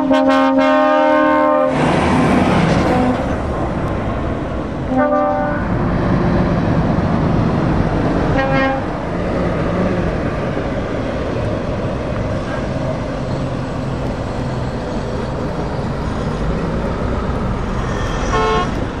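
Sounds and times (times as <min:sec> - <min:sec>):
truck horn blast: 0:00.0 - 0:01.8, 0:02.7 - 0:03.4, 0:04.9 - 0:05.8, 0:08.3 - 0:09.0, 0:18.2 - 0:18.8
heavy trucks driving past: 0:01.2 - 0:19.0.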